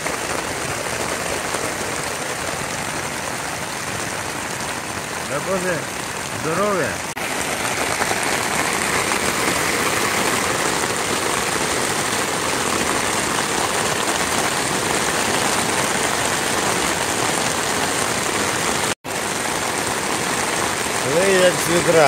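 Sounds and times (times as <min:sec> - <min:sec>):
heavy rain pouring: 0:00.0 - 0:22.0.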